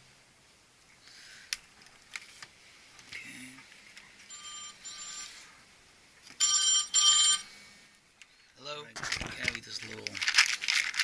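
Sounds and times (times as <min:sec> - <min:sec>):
phone buzzing ring tone: 0:04.3 - 0:05.6, 0:06.4 - 0:07.7.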